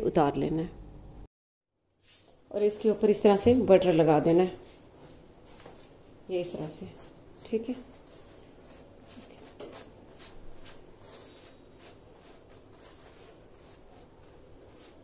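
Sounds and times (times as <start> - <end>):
soft brushing strokes: 2.0 - 15.0.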